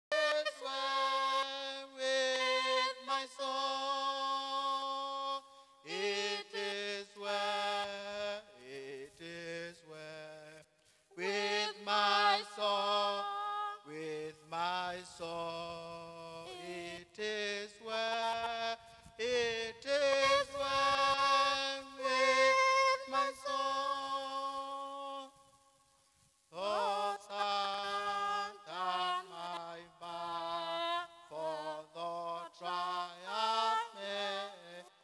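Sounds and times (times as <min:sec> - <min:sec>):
woman singing hymn solo: 0:00.1 - 0:08.1, 0:11.2 - 0:14.3, 0:16.3 - 0:17.3, 0:19.2 - 0:25.3, 0:26.6 - 0:34.7.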